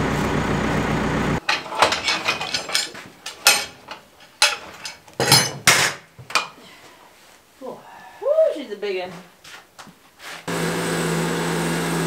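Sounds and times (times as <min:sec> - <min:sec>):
engine idling: 0:00.0 - 0:01.4
metallic clanks and clicks: 0:01.4 - 0:06.6.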